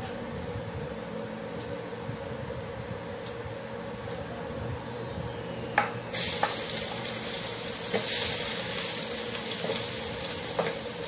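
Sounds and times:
garlic sizzling in oil: 6.1s - 11.0s.

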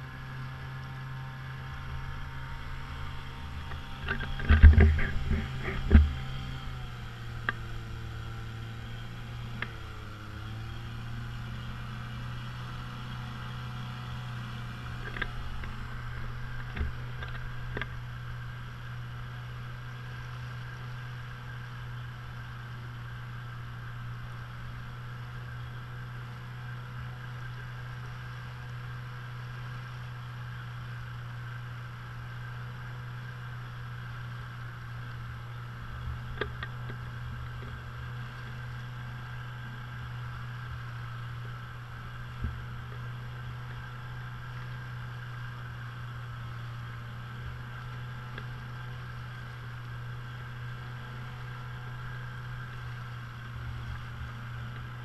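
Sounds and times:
outboard motor running: 0.0s - 55.0s
knocks and bumps: 4.0s - 6.3s.

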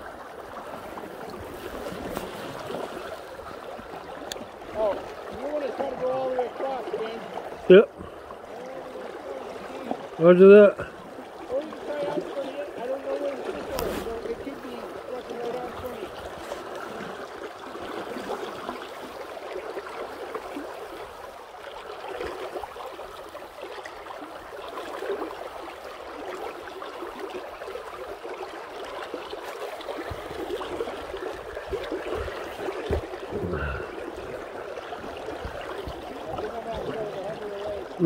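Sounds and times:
river rushing and gurgling: 0.0s - 38.0s.

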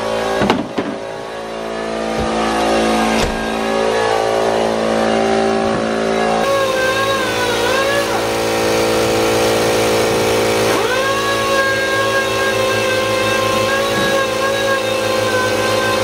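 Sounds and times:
air compressor running: 0.0s - 16.0s
knocks on car bumper: 0.4s - 1.0s.

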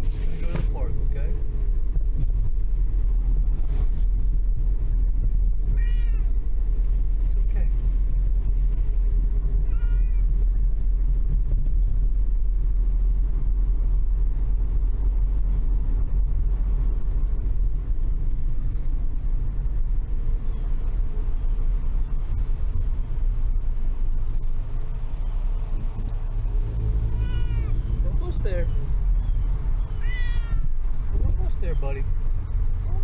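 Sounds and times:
steady low rumble: 0.0s - 33.0s
cat meowing: 5.7s - 6.4s, 9.6s - 10.3s, 26.9s - 28.0s, 29.8s - 30.8s.

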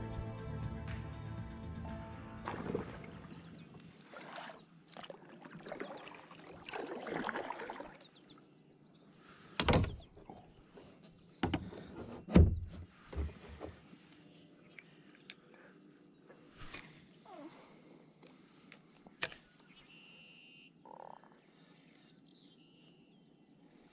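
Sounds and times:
water swishing: 2.4s - 8.3s.

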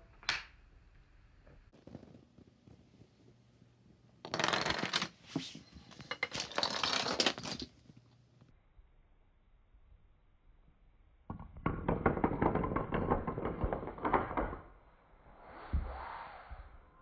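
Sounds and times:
dominoes toppling clatter: 4.2s - 5.2s, 6.0s - 7.7s, 11.8s - 14.6s.

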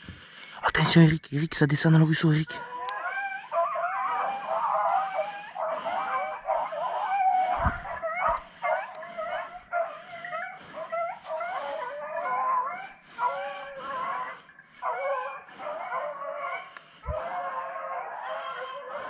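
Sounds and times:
hounds baying: 1.9s - 19.0s
low bumps: 7.5s - 8.5s.

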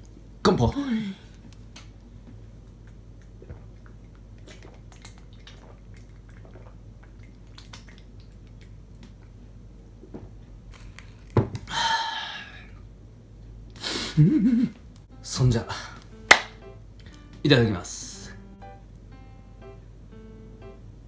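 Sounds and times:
gulping beer: 3.2s - 8.2s
breathy exhale: 11.7s - 12.8s.

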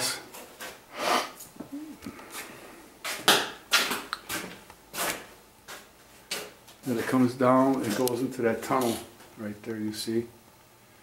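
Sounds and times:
faint hum: 0.0s - 3.1s.

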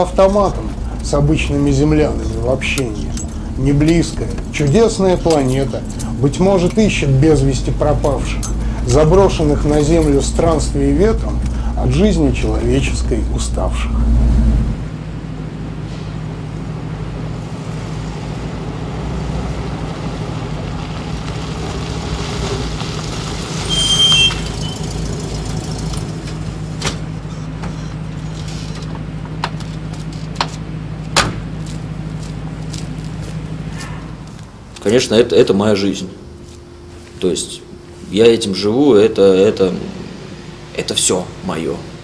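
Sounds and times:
brakes squealing: 0.0s - 42.0s
van engine hum: 0.0s - 42.0s
van door clicks and knocks: 30.4s - 31.5s.

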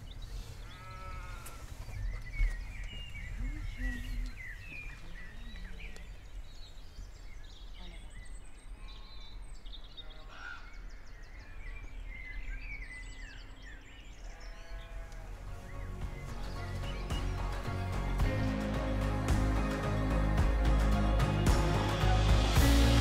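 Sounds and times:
bird chirps and trills: 0.0s - 20.1s
sheep bleat: 0.6s - 1.6s, 14.3s - 15.4s
low wind rumble on microphone: 1.6s - 8.6s.

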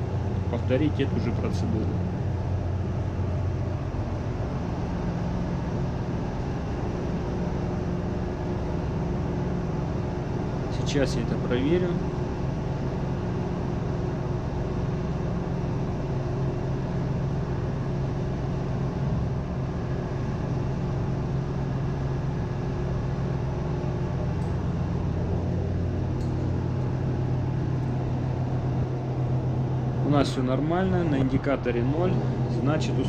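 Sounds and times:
engine-room machinery hum: 0.0s - 33.0s.

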